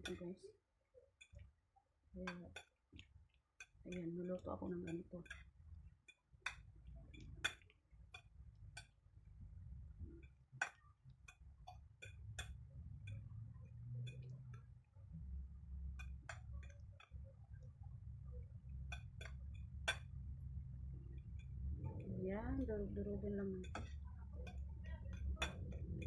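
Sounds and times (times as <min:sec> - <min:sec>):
low steady hum: 0:00.0 - 0:26.0
fork tines tapping a plate: 0:03.6 - 0:05.4, 0:07.2 - 0:09.0, 0:18.9 - 0:20.1, 0:23.6 - 0:26.0.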